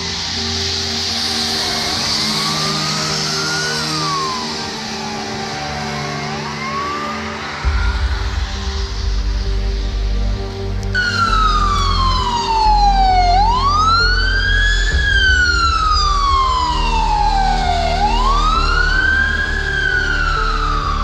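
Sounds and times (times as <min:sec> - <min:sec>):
ambulance siren wailing: 0:00.0 - 0:09.2, 0:11.0 - 0:21.0
low rumble: 0:07.4 - 0:21.0.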